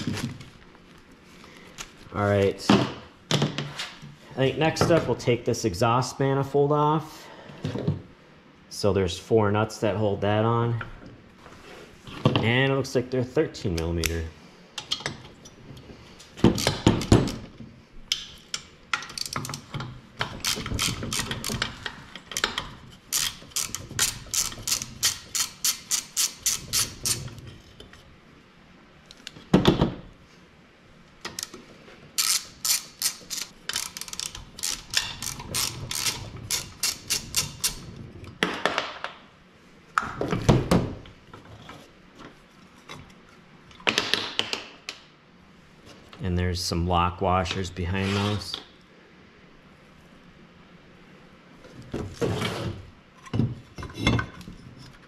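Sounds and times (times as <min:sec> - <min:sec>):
ratchet clicking: 0:22.4 - 0:27.2, 0:32.2 - 0:37.8.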